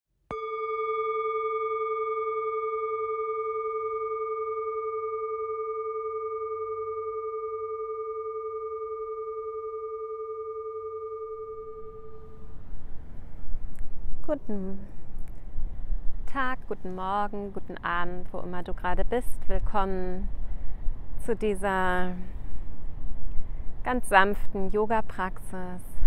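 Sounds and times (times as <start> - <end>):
singing bowl ringing: 0.3 - 13.0.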